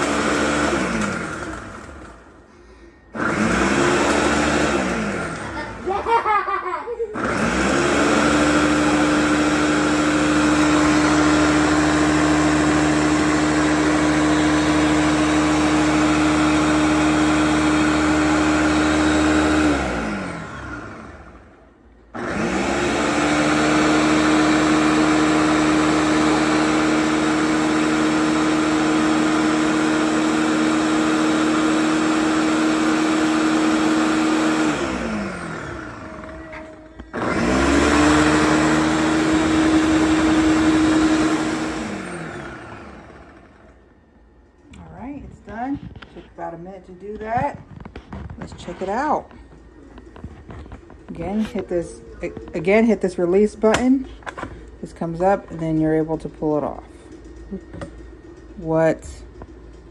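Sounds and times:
blender crushing ice: 0.0 - 2.2, 3.2 - 6.1, 7.2 - 21.4, 22.2 - 43.7.

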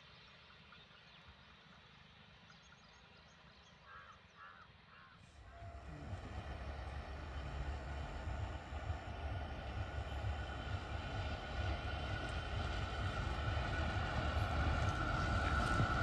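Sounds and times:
crow cawing: 3.9 - 5.2
train rumble: 5.2 - 16.0.

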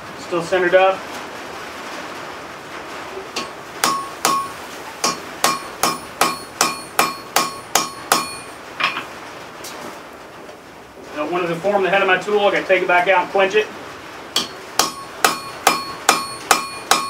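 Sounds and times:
hammer striking metal on anvil: 3.4 - 9.1, 14.4 - 17.0.

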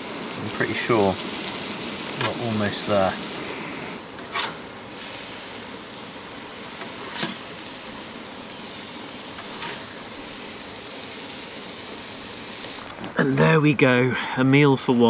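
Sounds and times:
metal utensil scraping griddle: 4.1 - 5.2, 6.8 - 7.5, 9.3 - 10.0.

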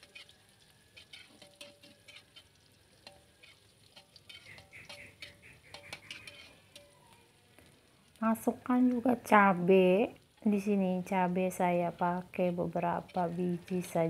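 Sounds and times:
metal spatula scraping a wok: 0.0 - 7.0, 11.8 - 14.0
faint sizzle: 0.0 - 14.0
wok ringing: 0.9 - 7.1.

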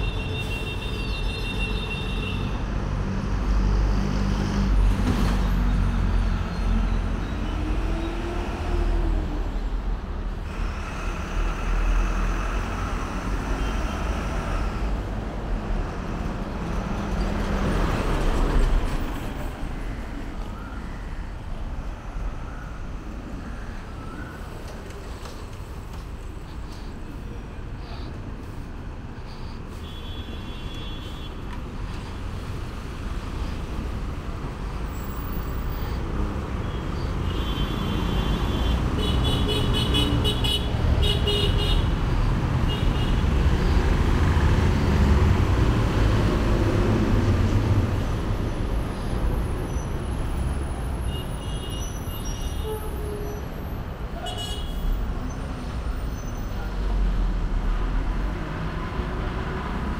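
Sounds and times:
traffic engines rumbling: 0.0 - 59.9.

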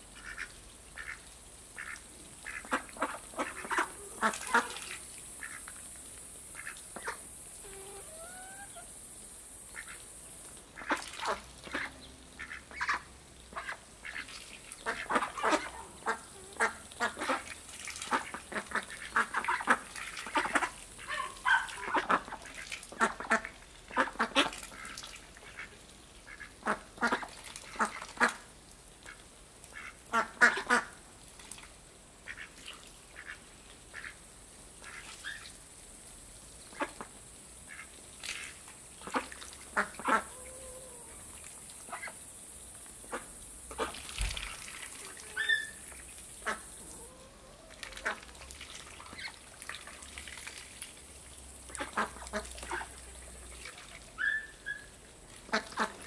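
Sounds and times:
ducks quacking: 0.2 - 1.2, 1.8 - 5.7, 10.8 - 28.5, 29.1 - 30.9, 37.7 - 41.0, 43.0 - 49.4, 51.7 - 56.0.

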